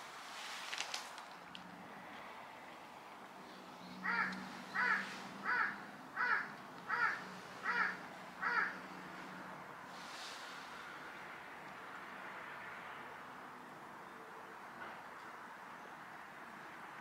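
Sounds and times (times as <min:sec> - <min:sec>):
crow cawing: 0:04.0 - 0:08.8.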